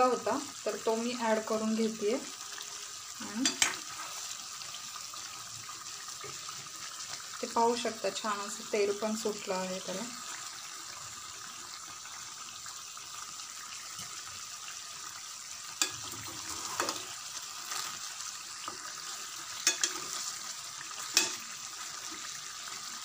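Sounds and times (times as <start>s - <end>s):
vegetables sizzling in oil: 0.0s - 23.0s
steel ladle clicking against pan: 3.4s - 3.8s, 15.8s - 16.0s, 19.6s - 20.0s, 21.1s - 21.4s.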